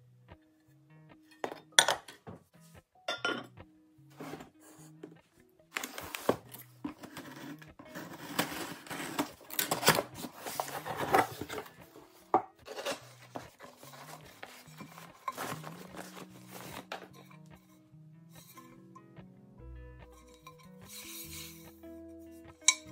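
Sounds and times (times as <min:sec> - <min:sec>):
soft background music: 0:00.0 - 0:22.9
cardboard box rustling and scraping: 0:04.1 - 0:05.1, 0:05.8 - 0:17.4.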